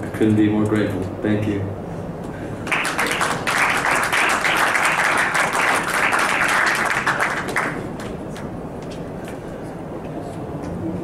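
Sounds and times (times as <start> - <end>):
people applauding: 2.6 - 8.5.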